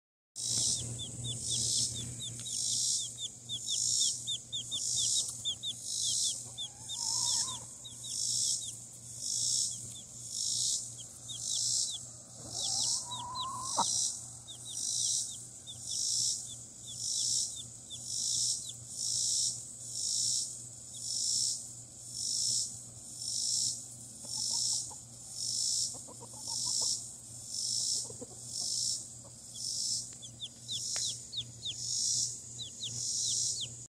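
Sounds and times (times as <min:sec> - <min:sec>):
faint high chirps: 0:00.4 - 0:18.7, 0:29.5 - 0:33.9
pulsing insect chorus: 0:00.4 - 0:33.9.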